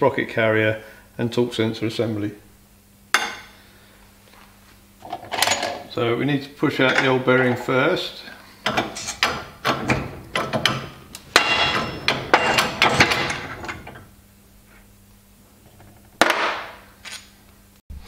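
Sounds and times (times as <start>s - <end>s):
hydraulic press clicking and clacking: 8.6s - 14.1s
sharp metal clank: 8.7s - 14.1s.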